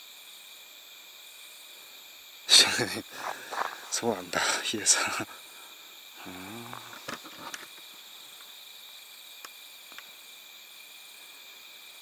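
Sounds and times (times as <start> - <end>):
night insects chirping: 0.0 - 12.0
man murmuring: 3.9 - 5.4, 6.2 - 7.2
faint ticks: 6.6 - 10.2.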